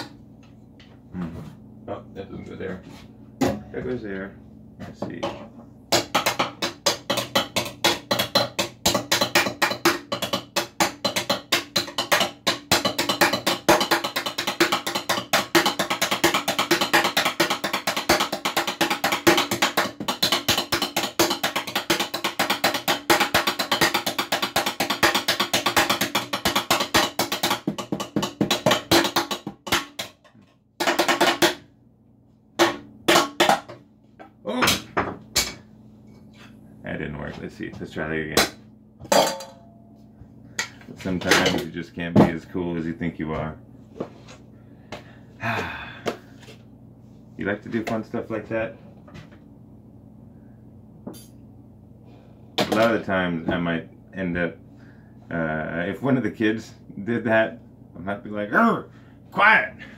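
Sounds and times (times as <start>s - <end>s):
wooden spoons drumming: 5.2s - 31.6s, 32.6s - 33.8s.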